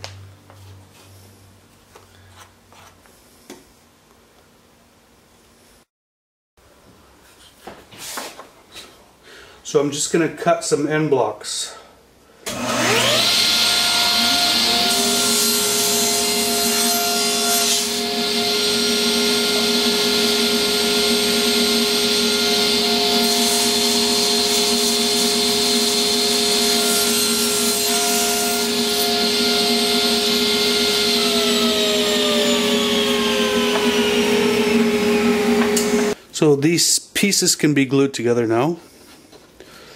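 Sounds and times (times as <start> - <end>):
saw blade cutting wood: 12.5 - 36.2
table saw running: 12.5 - 36.2.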